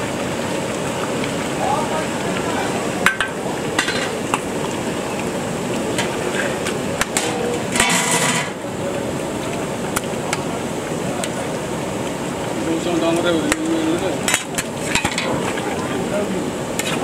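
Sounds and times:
gas burner hissing: 0.0 - 17.0
metal ladle scraping pot: 5.9 - 8.6, 14.2 - 15.6.

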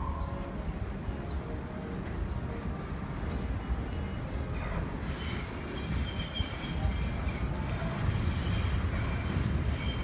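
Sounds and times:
subway train rumble: 0.0 - 10.0
high wheel squeal: 5.0 - 10.0.

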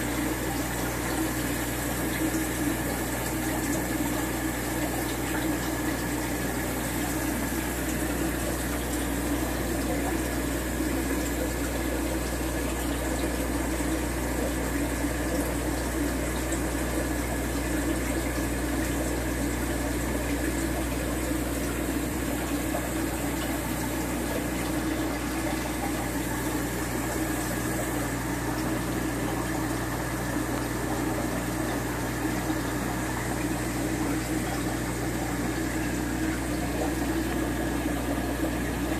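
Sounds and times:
filter pump hum: 0.0 - 38.9
flowing water: 0.0 - 38.9.

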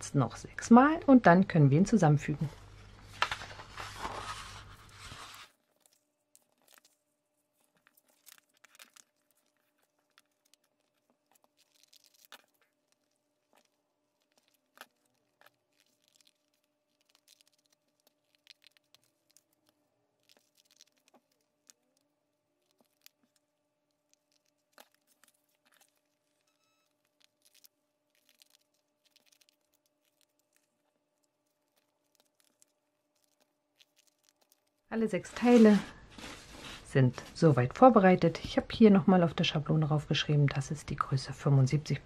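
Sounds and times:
paper rustling: 2.8 - 19.6, 27.0 - 37.5.

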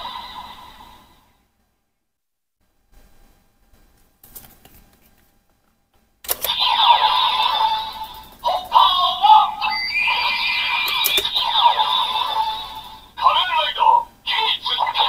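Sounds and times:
plastic card handling: 4.2 - 6.5, 10.9 - 11.3
toy electronic sound effects: 6.3 - 13.6, 14.3 - 15.0.

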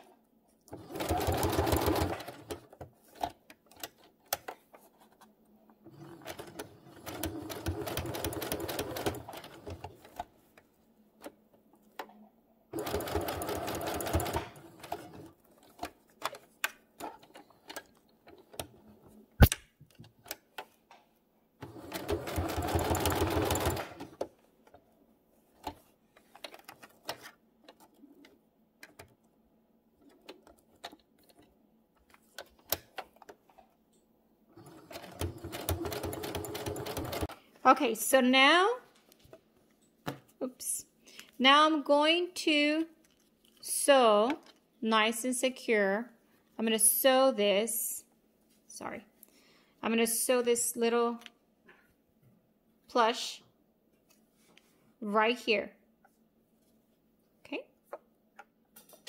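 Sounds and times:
electric sewing machine stitching: 0.7 - 2.6, 5.9 - 9.9, 21.6 - 24.1, 34.6 - 37.3.

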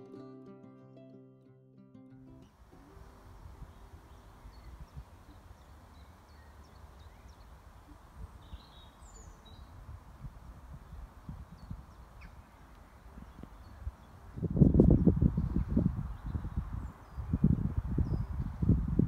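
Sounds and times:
small birds chirping: 3.0 - 18.9.

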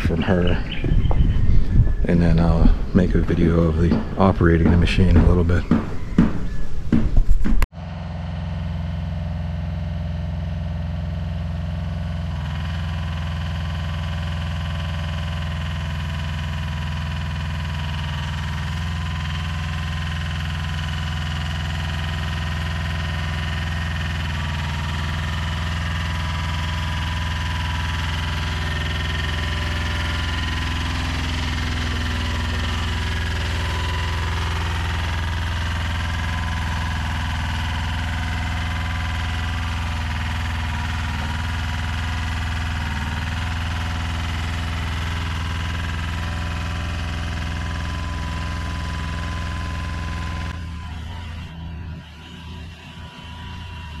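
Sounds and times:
diesel engine running steadily: 0.0 - 7.0, 7.6 - 54.0.

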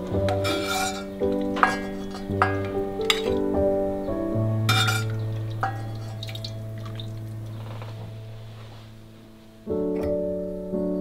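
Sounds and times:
background music chord: 0.0 - 11.0
metal ladle clinking on pot: 0.3 - 3.5, 4.7 - 7.1
soup dripping into bowl: 4.7 - 7.6.

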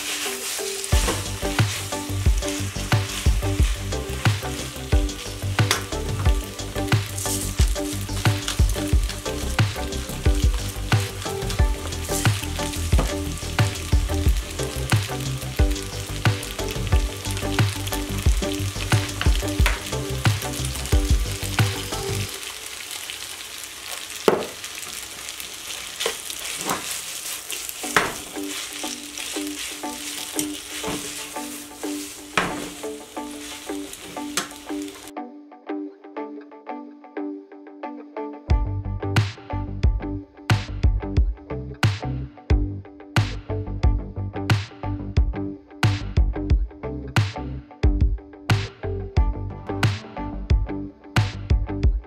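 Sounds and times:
background music with beat: 0.0 - 22.4, 27.8 - 35.2, 38.5 - 52.0
spaghetti sizzling in frying pan: 0.0 - 35.1
metal tongs stirring: 25.7 - 35.1.

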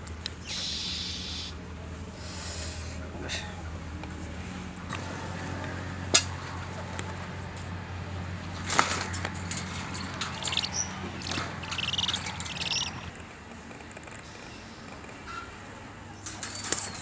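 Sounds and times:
scrabbling against wire mesh: 8.6 - 13.2
cage clicking and knocking: 8.7 - 13.1
owls flapping wings: 8.7 - 13.2.

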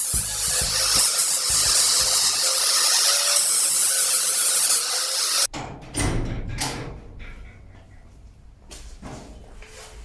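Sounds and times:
angle grinder grinding metal: 0.0 - 5.5.

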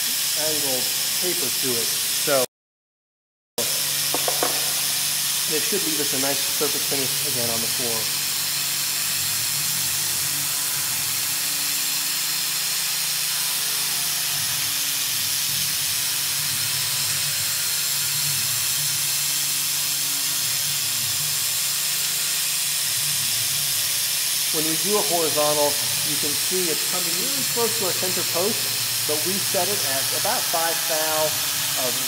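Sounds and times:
coolant nozzle hissing: 0.0 - 2.4, 3.7 - 32.0
mill cutting metal: 0.0 - 2.5, 3.6 - 32.0.

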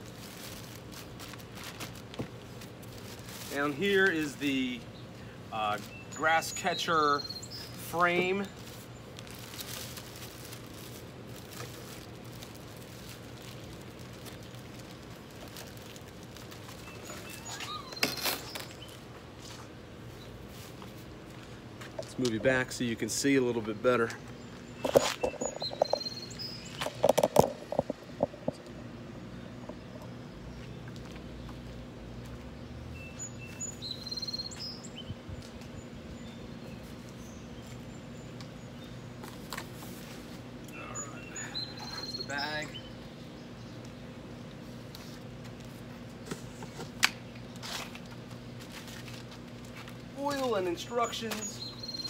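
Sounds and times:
plastic crinkling: 0.0 - 4.0, 7.7 - 19.0
plastic and cardboard rustling: 0.0 - 4.1, 7.8 - 19.6, 47.6 - 50.6
steady low hum: 0.0 - 52.0
songbird chirping and trilling: 3.8 - 9.4, 16.7 - 20.4, 23.1 - 44.4, 50.1 - 52.0.

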